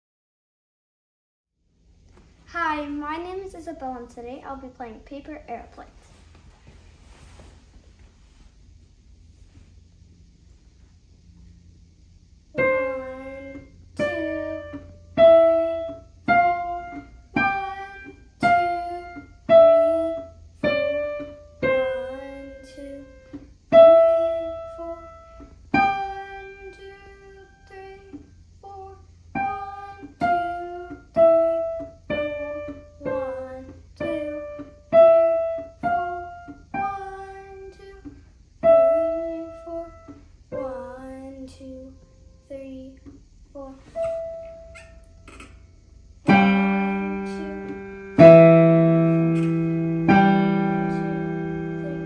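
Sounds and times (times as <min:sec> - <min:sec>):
digital piano slow melody: 0:12.5 - 0:42.3, 0:43.9 - 0:52.0.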